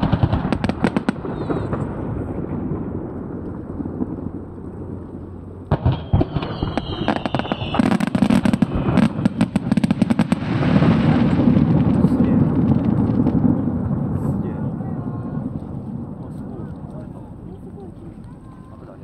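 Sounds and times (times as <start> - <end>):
firework cracks: 0.0 - 19.0
rumble of firework bursts: 0.0 - 19.0
firework whistles: 1.2 - 1.8, 5.7 - 10.0
firework shell bangs: 5.7 - 10.3.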